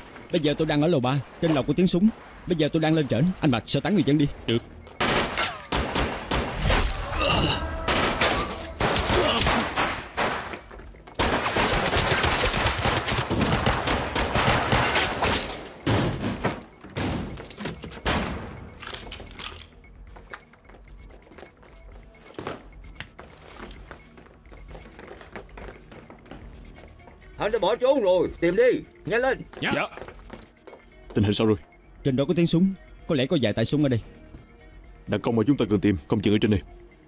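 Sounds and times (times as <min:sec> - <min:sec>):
gunshots: 0:05.0 - 0:07.0, 0:07.7 - 0:10.5, 0:11.2 - 0:17.4.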